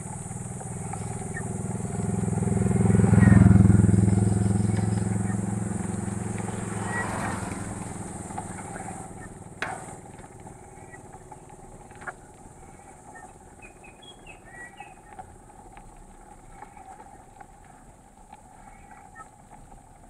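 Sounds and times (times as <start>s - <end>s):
motorcycle engine: 0.0s - 17.9s
bike tyre and drivetrain noise: 0.0s - 20.0s
bird chirps: 0.6s - 15.2s.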